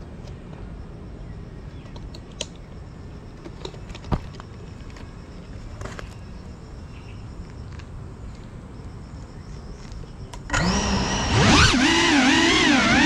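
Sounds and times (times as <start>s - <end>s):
low background noise: 0.0s - 13.0s
drone motors whining: 10.5s - 13.0s.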